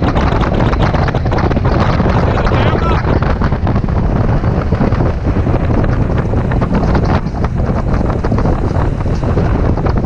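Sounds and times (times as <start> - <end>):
boat motor running: 0.0 - 10.0
wind buffeting microphone: 0.0 - 10.0.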